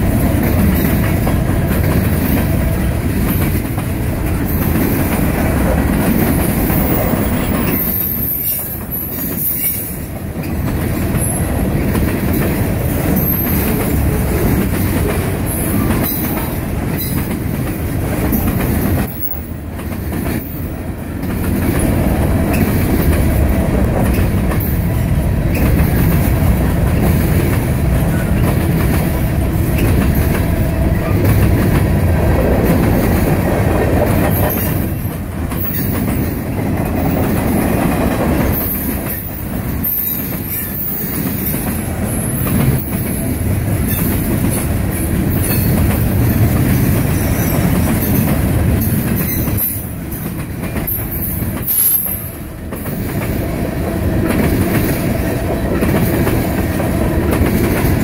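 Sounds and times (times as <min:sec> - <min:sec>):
train wheels rumbling on rails: 0:00.0 - 0:58.0
wheel squeal: 0:07.6 - 0:10.0.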